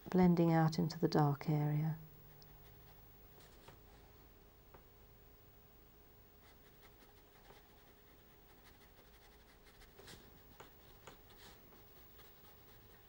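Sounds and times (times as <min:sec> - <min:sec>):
faint steady hum: 0:00.0 - 0:13.0
paintbrush strokes on paper: 0:02.6 - 0:04.2, 0:06.4 - 0:13.0.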